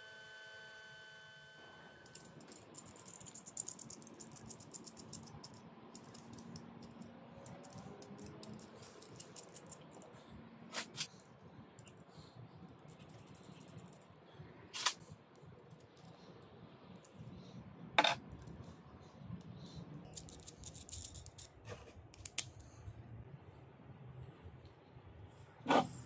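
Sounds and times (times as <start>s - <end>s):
metal nuts clicking and rattling: 2.1s - 10.1s, 20.1s - 21.6s.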